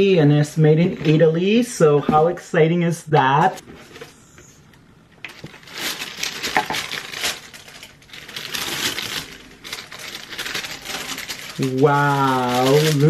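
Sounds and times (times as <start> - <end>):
tissue paper crinkling: 5.3 - 13.0.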